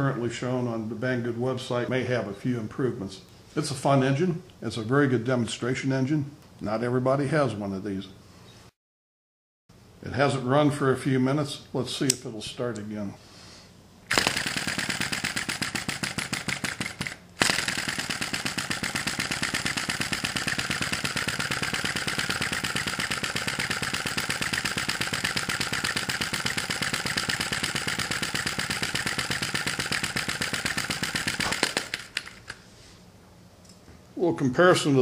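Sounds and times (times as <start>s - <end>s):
model engine ticking clatter: 14.1s - 32.5s.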